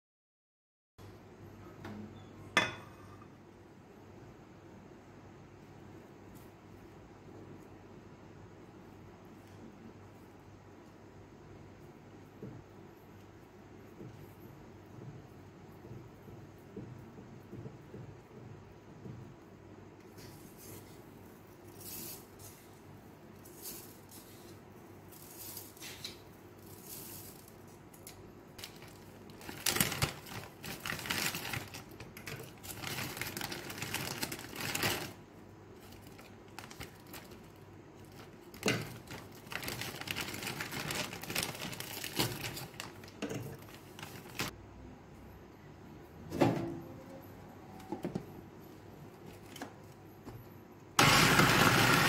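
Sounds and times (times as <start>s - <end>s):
plastic bag crinkling: 28.6s - 35.2s, 35.8s - 44.5s.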